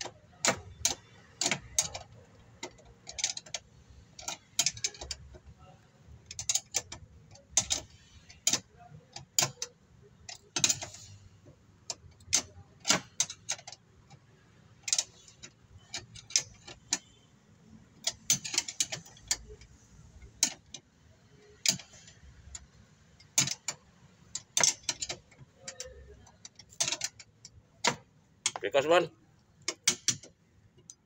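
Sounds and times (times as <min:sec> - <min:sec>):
wrench clicking on metal bolts: 0:00.0 - 0:05.5, 0:06.2 - 0:11.2, 0:11.9 - 0:14.2, 0:14.8 - 0:17.2, 0:18.0 - 0:20.8, 0:21.6 - 0:29.0, 0:29.6 - 0:31.0.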